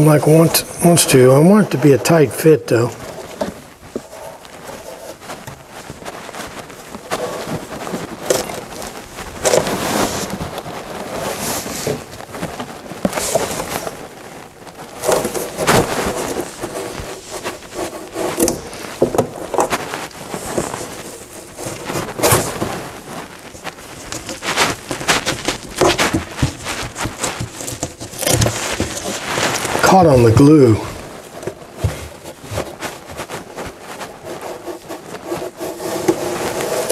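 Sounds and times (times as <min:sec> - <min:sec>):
panel rubbing against wood: 0:15.0 - 0:22.6, 0:31.8 - 0:36.9.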